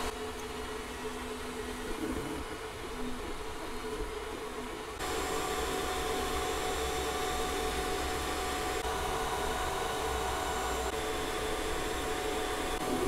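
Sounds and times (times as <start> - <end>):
faint motor tones: 0.0 - 13.0
fans whirring: 0.0 - 13.0.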